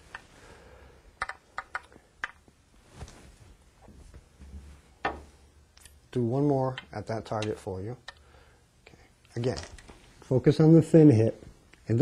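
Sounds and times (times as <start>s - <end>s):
pool balls clicking: 1.2s - 2.5s.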